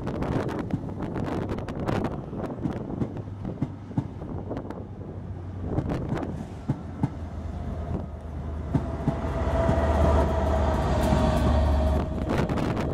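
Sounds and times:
diesel locomotive engine drone: 0.0 - 12.9
train wheels clicking over rail joints: 2.5 - 4.7, 5.8 - 12.9.

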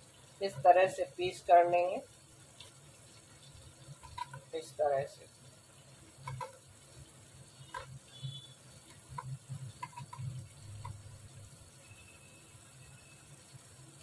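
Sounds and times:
knife tapping metal plate: 6.2 - 6.6, 9.1 - 11.0.

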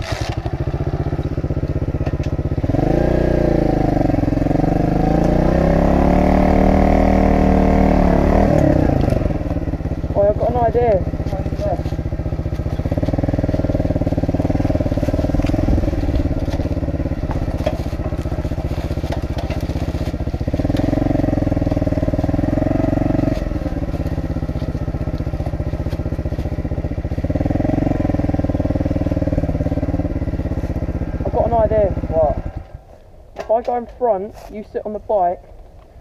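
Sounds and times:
motorbike engine running: 0.0 - 33.9.

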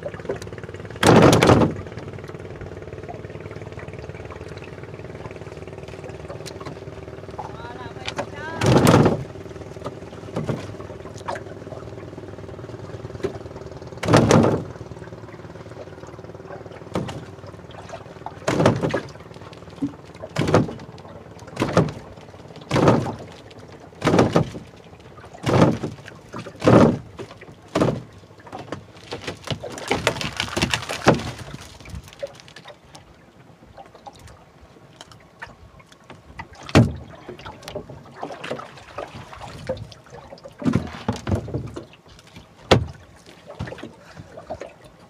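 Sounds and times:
knocks against boat hull: 1.0 - 1.9, 8.1 - 11.4, 14.0 - 14.8, 16.9 - 17.3, 18.4 - 19.1, 20.3 - 20.9, 21.5 - 23.3, 24.0 - 24.7, 25.4 - 31.4, 36.6 - 37.0, 42.6 - 43.9
fish splashing in water: 8.2 - 33.1, 36.4 - 45.0.

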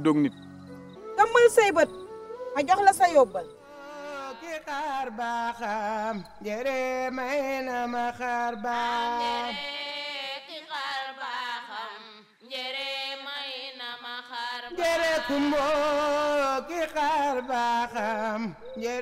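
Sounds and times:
person singing chant-like melody: 3.6 - 12.1, 14.7 - 19.0.

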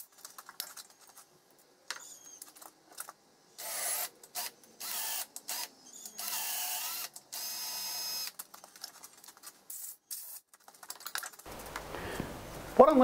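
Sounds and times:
cordless drill motor whining: 3.6 - 8.3.

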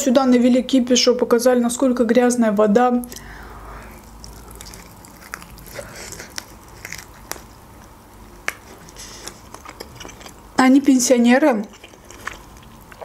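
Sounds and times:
person biting and chewing: 3.9 - 10.5, 11.7 - 13.0.

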